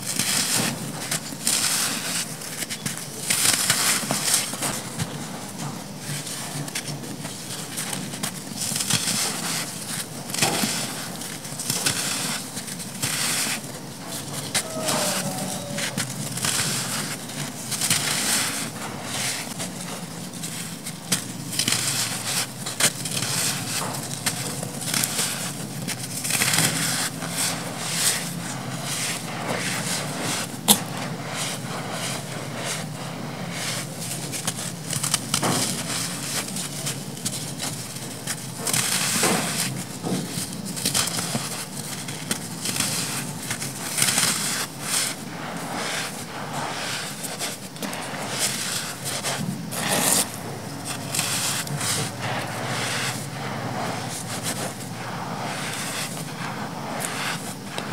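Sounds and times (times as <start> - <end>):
dry sand crunching by hand: 7.7 - 57.9.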